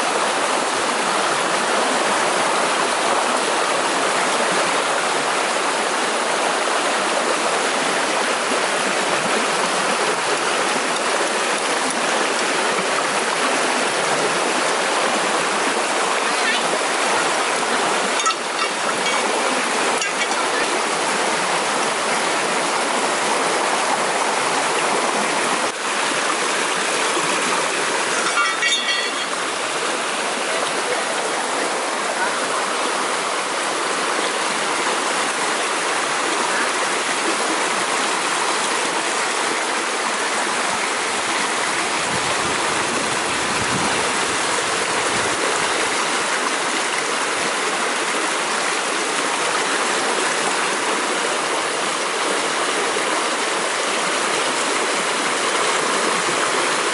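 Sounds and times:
river rushing over rocks: 0.0 - 56.9.

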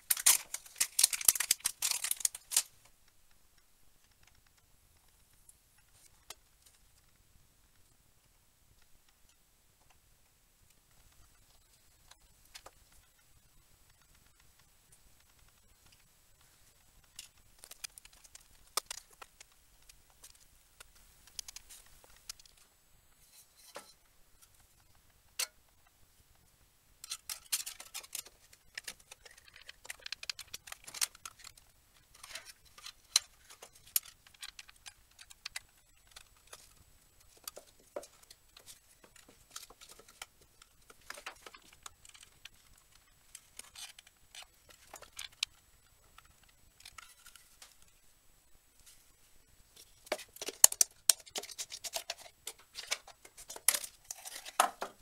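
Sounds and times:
clicks taps and scrapes on metal: 17.0 - 25.8, 27.0 - 45.6, 49.8 - 55.0.

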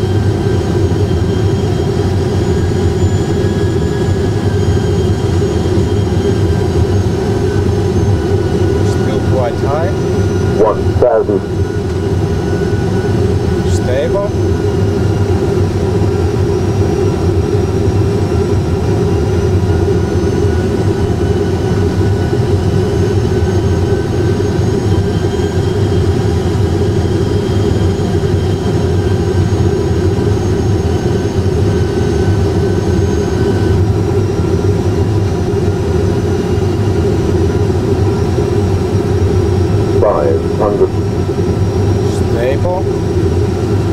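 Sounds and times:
jet engine rumble and hiss: 0.0 - 43.9.

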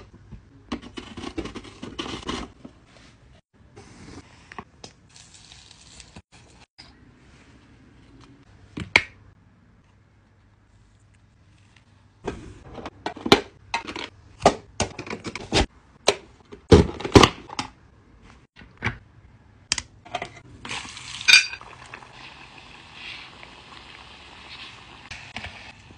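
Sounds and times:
potato strips sizzling in oil: 20.7 - 25.9.

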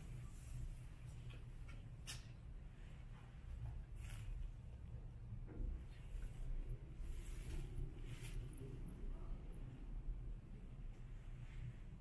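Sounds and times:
soft rustle: 0.0 - 5.0, 5.8 - 9.8, 10.8 - 12.0
faint low rumble: 2.6 - 12.0.

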